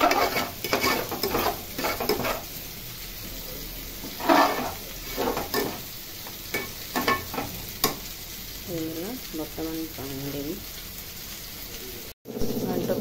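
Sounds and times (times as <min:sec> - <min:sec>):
spoon scraping a pot: 0:00.0 - 0:02.5, 0:04.0 - 0:05.9, 0:06.5 - 0:08.0
food sizzling: 0:00.0 - 0:13.0.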